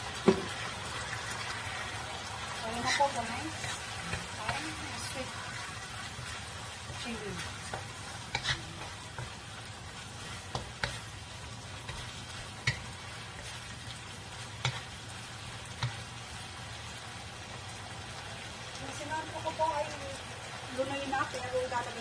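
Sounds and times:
food sizzling in a wok: 0.0 - 22.0
wooden spatula scraping: 2.6 - 16.0
spatula knocking against pan: 10.5 - 11.0, 12.6 - 12.9.

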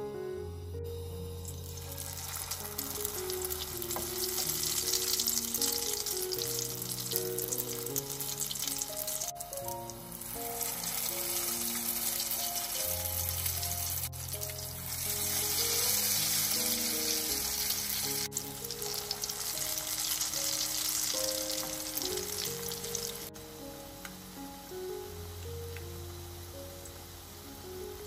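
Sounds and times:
background music: 0.0 - 28.0
hot oil sizzling in a pan: 1.3 - 23.4.

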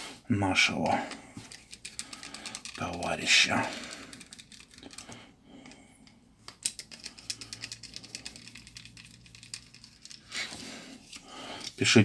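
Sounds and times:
screwdriver clicking and scraping: 1.4 - 3.2, 6.5 - 11.9.

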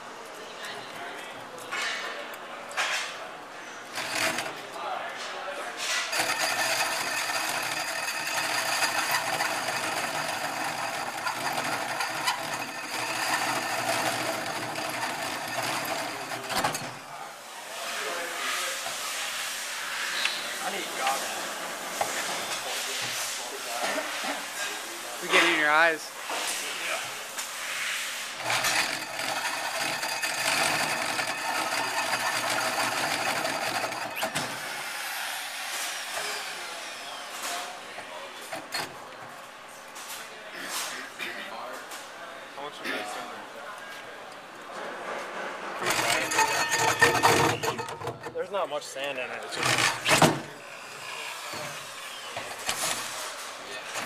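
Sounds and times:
hole saw cutting metal: 3.9 - 4.6, 5.9 - 17.0, 28.4 - 37.2, 45.8 - 48.3, 49.4 - 53.1.

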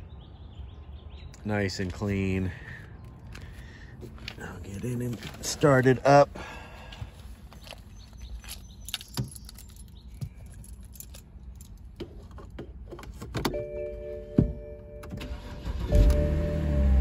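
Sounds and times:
keys jangling: 8.2 - 12.5
ignition whine: 13.5 - 17.0.

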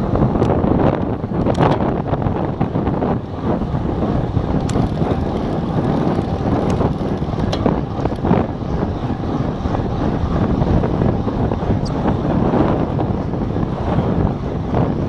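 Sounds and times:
wind rushing over microphone: 0.0 - 15.0
tyre rumble on asphalt: 4.2 - 8.4
sharp clicks or rattles: 4.6 - 8.3.

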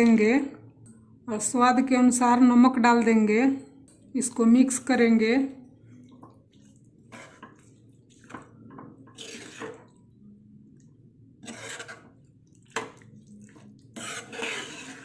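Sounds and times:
spatula stirring wet beans: 5.9 - 10.0, 11.4 - 15.0.

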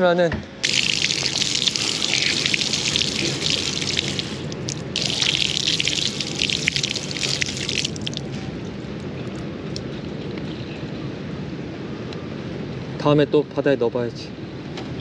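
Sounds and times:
water spraying on concrete: 0.6 - 8.4.

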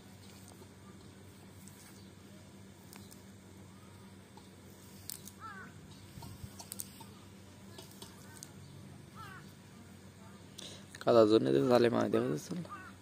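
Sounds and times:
net clicks and rustles: 2.8 - 3.4, 4.8 - 8.6.

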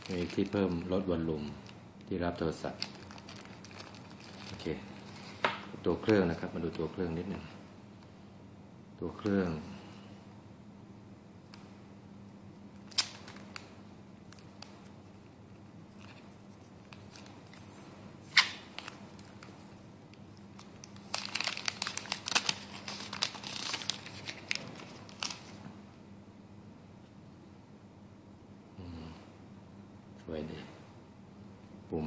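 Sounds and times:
plastic film crinkling: 0.0 - 6.9, 12.8 - 25.7.

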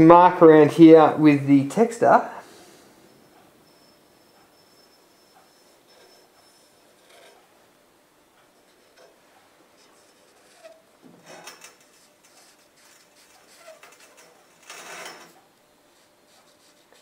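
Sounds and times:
marker pen scratching on paper: 9.8 - 10.9, 11.7 - 14.1, 15.9 - 17.0.

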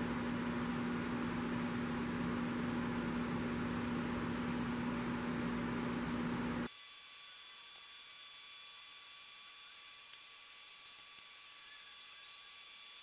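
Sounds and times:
steady hum with hiss: 0.0 - 13.0
high-pitched electrical whine: 6.7 - 13.0.

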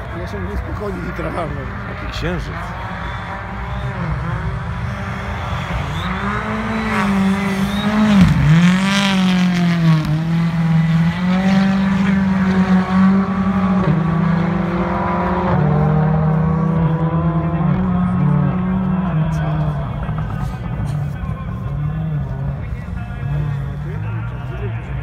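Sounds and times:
rally car engine revving: 0.0 - 25.0.

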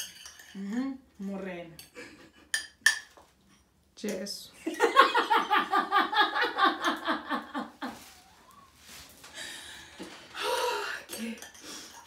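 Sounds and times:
women laughing: 4.7 - 8.1.

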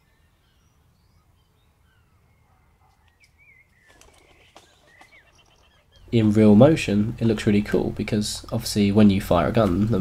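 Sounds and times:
faint bird chirps: 0.0 - 6.3
faint clicks: 2.9 - 5.7.

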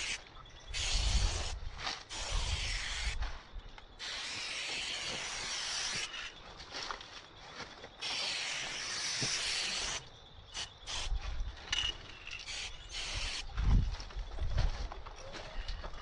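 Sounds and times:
aerosol spray can spraying: 0.8 - 3.2, 4.0 - 6.3, 12.5 - 13.4.

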